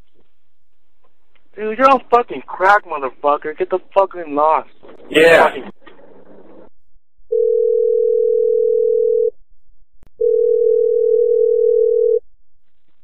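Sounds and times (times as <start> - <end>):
telephone ringback tone: 7.3 - 9.3, 10.2 - 12.2.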